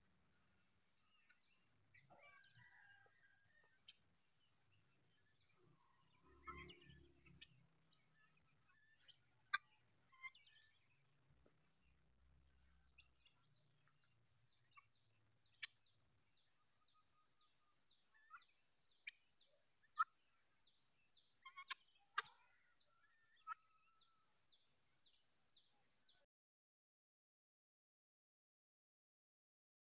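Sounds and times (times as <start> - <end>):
guineafowl calls: 1.0 - 4.0, 5.5 - 7.6, 8.2 - 10.9, 14.7 - 14.9, 15.5 - 15.9, 19.9 - 20.2, 21.4 - 24.2.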